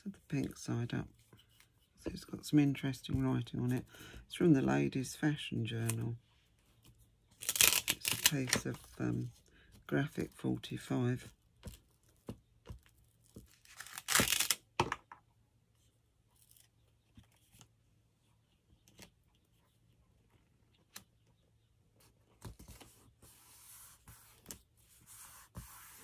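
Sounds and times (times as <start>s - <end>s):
paper ripping: 7.4s - 8.6s, 13.6s - 14.6s.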